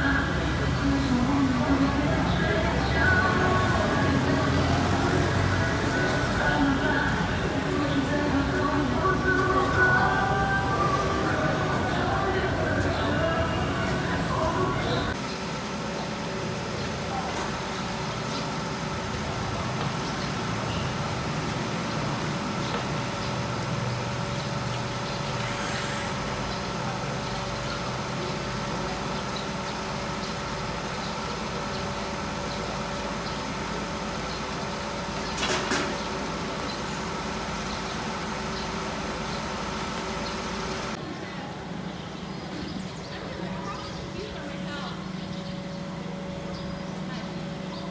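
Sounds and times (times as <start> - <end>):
engine humming steadily: 0.0 - 47.9.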